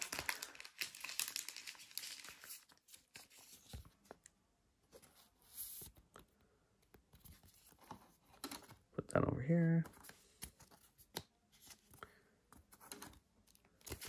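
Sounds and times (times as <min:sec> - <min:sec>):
plastic card sleeves crinkling: 0:00.0 - 0:04.2.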